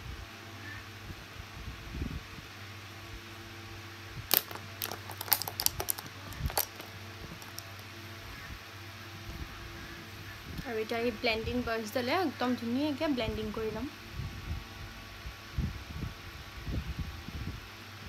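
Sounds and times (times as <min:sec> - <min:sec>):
makeup tools clicking and clattering: 0:04.3 - 0:07.8.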